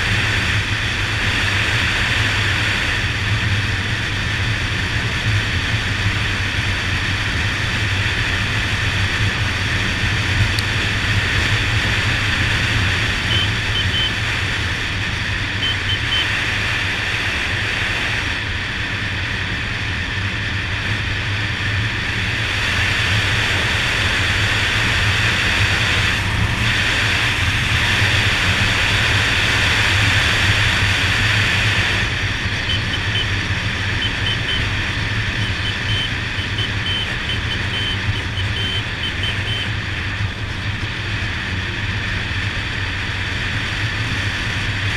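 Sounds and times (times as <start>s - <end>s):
wind rushing over microphone: 0.0s - 35.4s
motorcycle engine hum: 0.0s - 44.9s.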